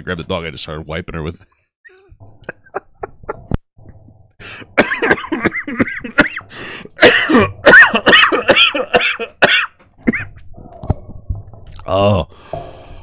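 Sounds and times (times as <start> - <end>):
man coughing hard: 4.7 - 10.3.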